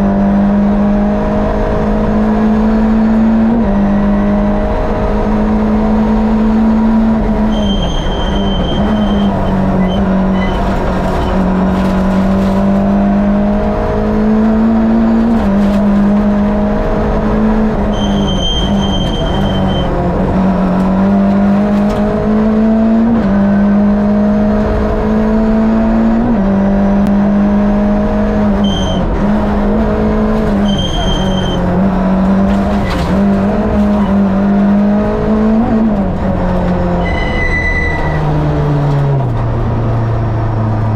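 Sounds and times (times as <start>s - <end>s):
rally car engine revving: 0.0s - 40.9s.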